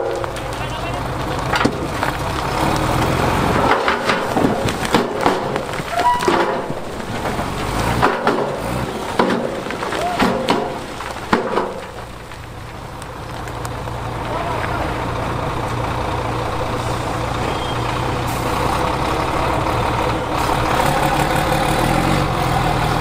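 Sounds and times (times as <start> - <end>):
big stones clattering and knocking: 0.0 - 14.9
truck engine running: 0.0 - 23.0.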